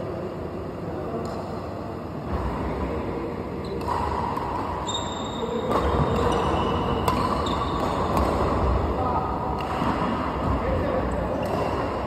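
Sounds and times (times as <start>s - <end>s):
steady hall background noise: 0.0s - 12.0s
racket hitting shuttlecock: 3.7s - 10.6s, 11.3s - 12.0s.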